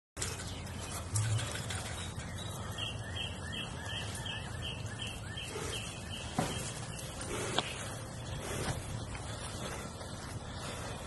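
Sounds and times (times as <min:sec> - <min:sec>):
bird chirping: 0:00.2 - 0:08.6
outdoor background noise: 0:00.2 - 0:11.0.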